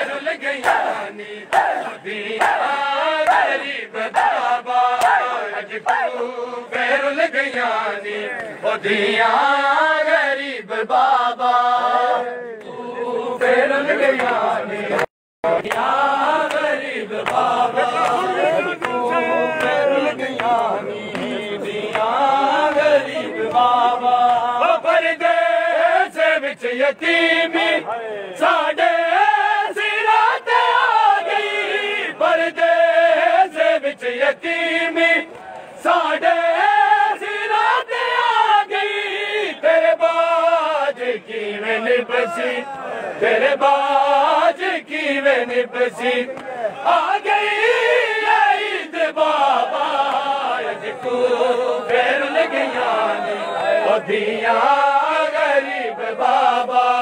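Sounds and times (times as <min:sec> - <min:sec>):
men chanting together: 0:00.0 - 0:57.0
hands slapping chests: 0:00.6 - 0:03.5, 0:04.1 - 0:06.2.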